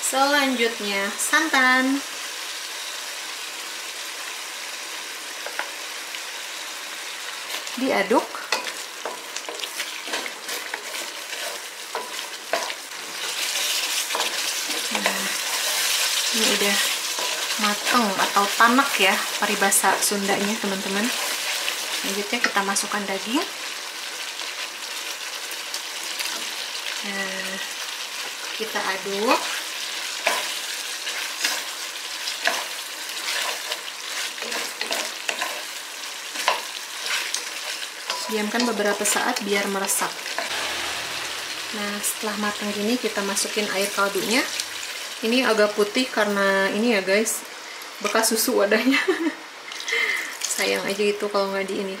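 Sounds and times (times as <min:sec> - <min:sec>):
food sizzling in a pan: 0:00.0 - 0:52.0
utensil scraping a pan: 0:08.5 - 0:18.6, 0:40.2 - 0:42.8.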